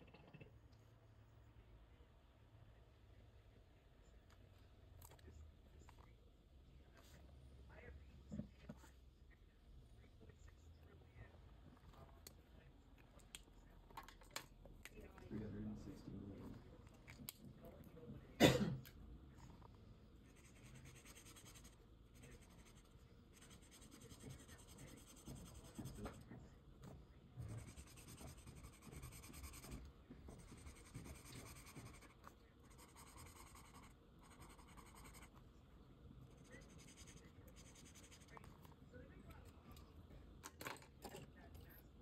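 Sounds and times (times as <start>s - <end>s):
marker scratching on paper: 20.3s - 26.2s, 27.4s - 35.4s, 36.3s - 38.4s.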